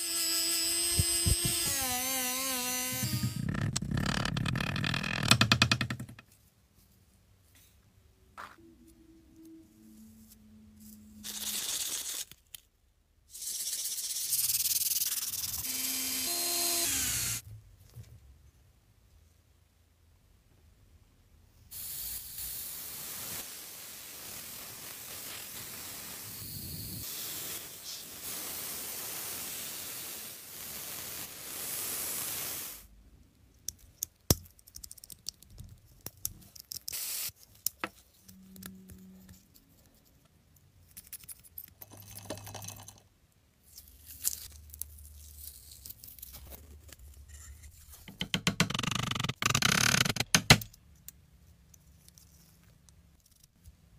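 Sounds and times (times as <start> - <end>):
steady spray hiss: 21.7 - 32.9.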